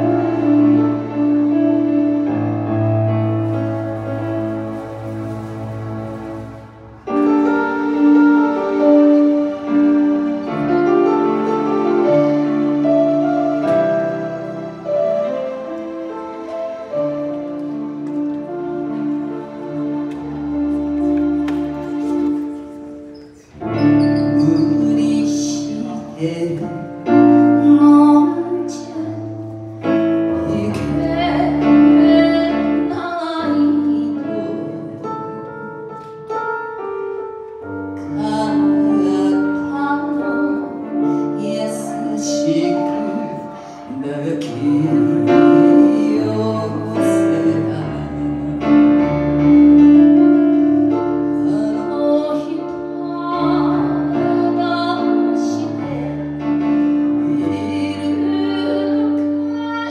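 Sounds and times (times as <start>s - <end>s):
woman singing into a microphone: 24.3s - 35.5s, 38.0s - 48.7s, 51.3s - 56.6s, 57.2s - 59.9s.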